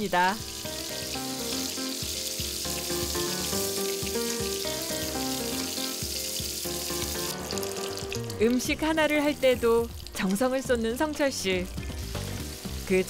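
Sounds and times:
background music: 0.0 - 13.0
food sizzling in a frying pan: 0.0 - 13.0.

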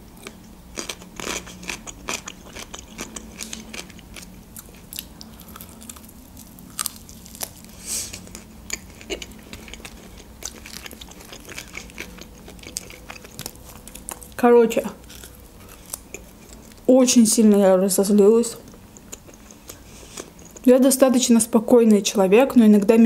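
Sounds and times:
chewing and biting meat: 0.2 - 14.4.

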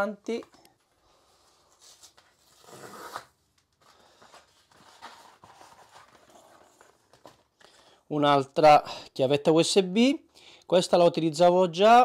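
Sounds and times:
rustling product packaging: 1.6 - 7.9.

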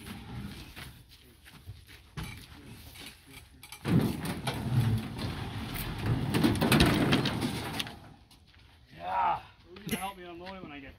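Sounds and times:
metal scraping and knocking: 3.1 - 8.2.

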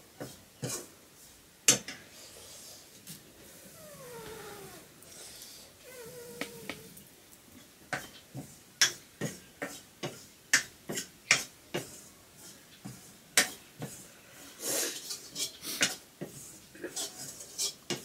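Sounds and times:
cat meowing: 3.7 - 5.0, 5.8 - 7.0.

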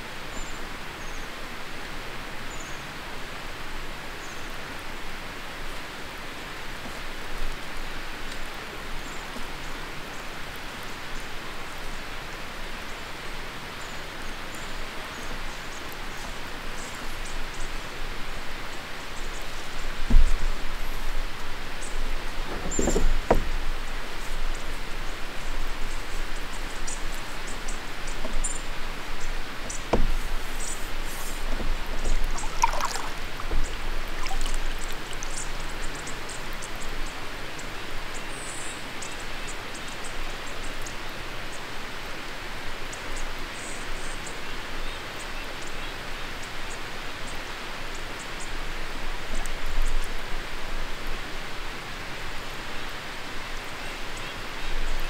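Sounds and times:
water lapping along canoe hull: 15.9 - 36.8
faint knock: 22.5 - 23.5, 29.9 - 30.2.

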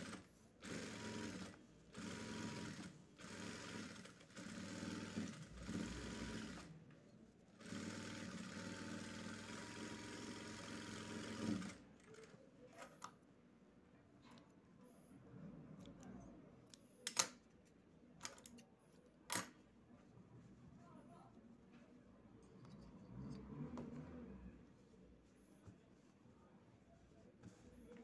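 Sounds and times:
electric sewing machine stitching: 0.0 - 6.7, 7.6 - 11.8.

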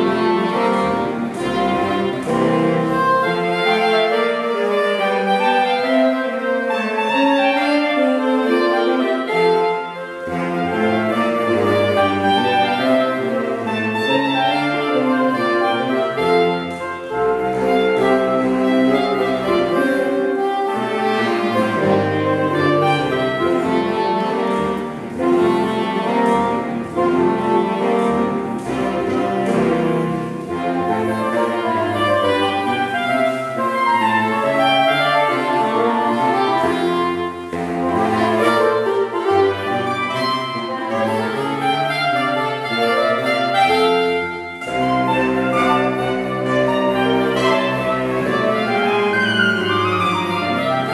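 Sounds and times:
saxophone quartet playing: 0.0 - 50.9.

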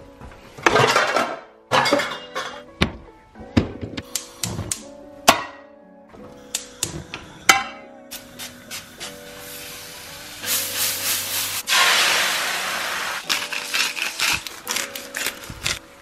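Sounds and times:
quiet background music: 0.0 - 16.0
food sizzling in frying pan: 9.0 - 13.8.

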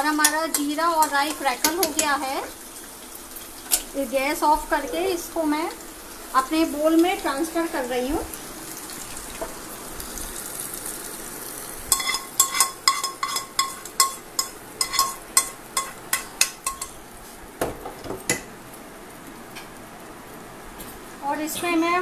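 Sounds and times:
spoon scraping a pan: 0.0 - 2.3, 11.9 - 17.0
spoon clinking on glass bowl: 11.9 - 17.0.

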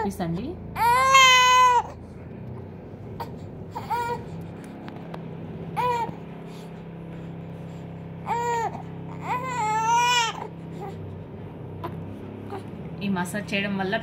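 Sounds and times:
baby crying: 0.8 - 2.0, 3.2 - 4.4, 5.8 - 6.2, 8.2 - 11.0.

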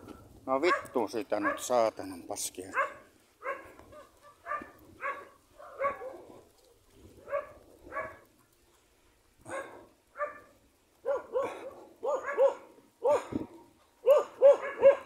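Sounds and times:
dog barking: 0.6 - 1.8, 2.7 - 6.5, 7.2 - 8.2, 9.4 - 13.4, 14.0 - 15.0.

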